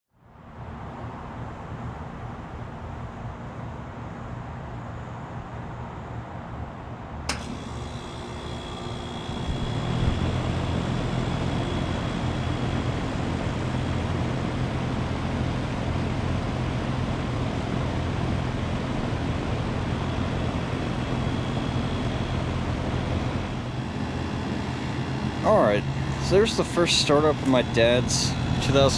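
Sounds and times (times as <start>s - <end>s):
air conditioner humming: 7.2s - 28.9s
air conditioner switch click: 7.3s - 10.4s.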